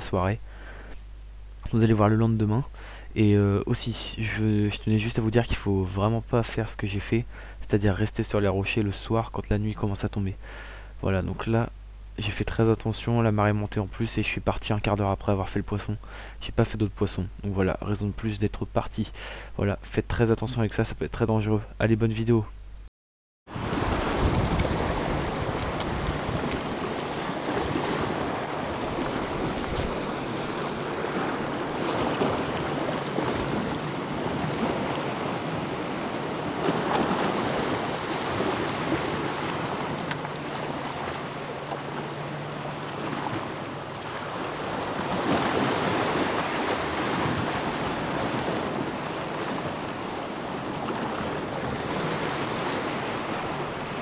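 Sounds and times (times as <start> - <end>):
sea waves washing against rocks: 23.5 - 54.0
wind on microphone: 23.6 - 40.2.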